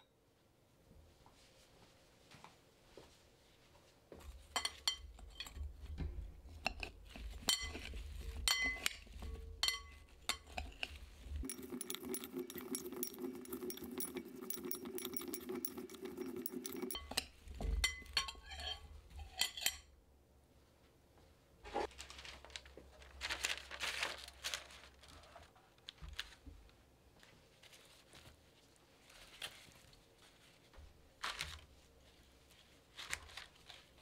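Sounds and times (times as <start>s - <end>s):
spoons clinking on a glass bowl: 4.6s - 5.6s, 7.5s - 7.8s, 8.4s - 19.8s.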